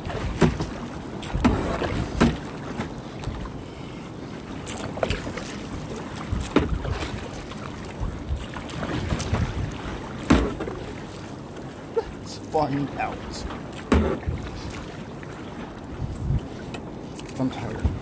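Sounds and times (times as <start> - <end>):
water splashing around boat: 0.0 - 18.0
wind buffeting microphone: 5.1 - 10.2, 13.3 - 15.0, 15.6 - 18.0.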